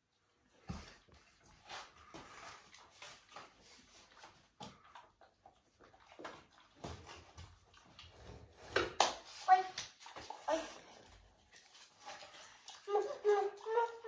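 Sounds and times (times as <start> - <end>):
dog chewing and licking: 1.6 - 8.6.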